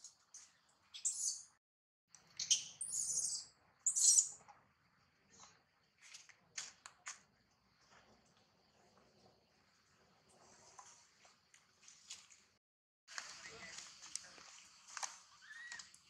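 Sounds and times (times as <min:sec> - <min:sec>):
baby monkey shrill screeches: 0:02.4 - 0:04.3, 0:15.4 - 0:15.9.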